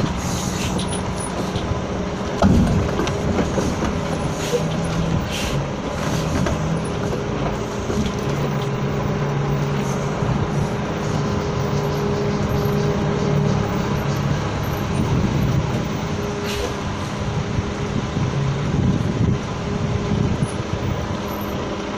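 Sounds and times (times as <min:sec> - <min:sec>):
bus diesel engine running: 0:00.0 - 0:21.9
brief air hiss: 0:00.2 - 0:00.8, 0:05.3 - 0:05.6, 0:16.5 - 0:16.8.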